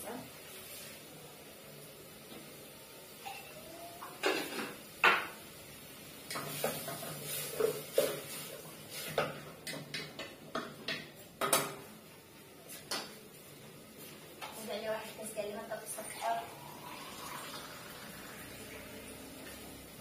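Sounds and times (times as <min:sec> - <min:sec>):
metal pot and utensils clattering: 0:03.2 - 0:05.4.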